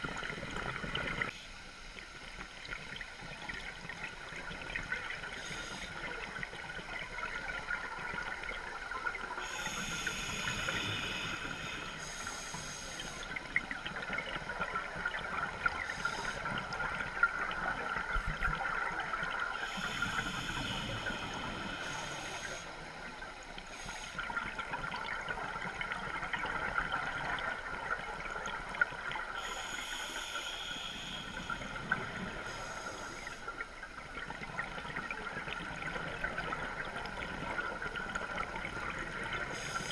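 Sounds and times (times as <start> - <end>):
steady hiss: 0.0 - 39.9
diver breathing underwater: 9.4 - 13.4, 19.5 - 22.9, 29.4 - 33.6.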